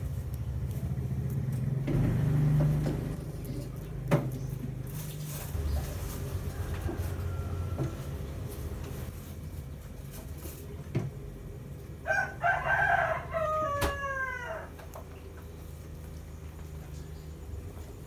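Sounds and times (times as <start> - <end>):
steady low hum: 0.0 - 18.0
rooster crowing: 6.1 - 8.6, 12.0 - 14.8.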